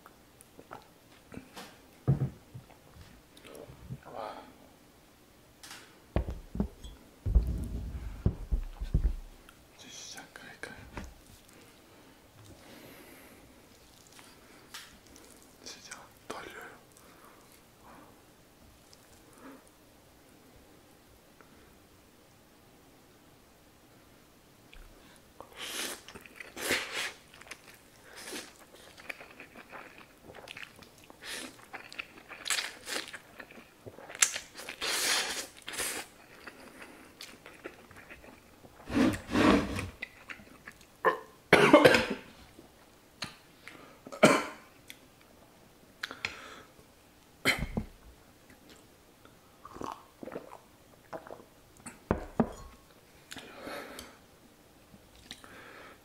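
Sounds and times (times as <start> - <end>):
person chewing noodles: 13.5 - 15.6, 25.5 - 40.9, 49.6 - 51.4
person coughing: 41.5 - 42.3, 44.2 - 44.6.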